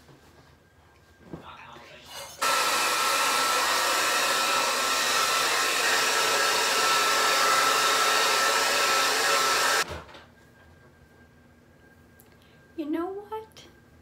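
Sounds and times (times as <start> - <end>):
hair dryer blowing: 2.4 - 9.9.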